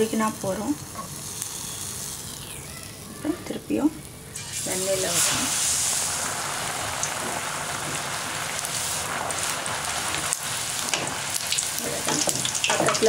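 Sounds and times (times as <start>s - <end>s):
batter sizzling in hot oil: 0.0s - 13.0s.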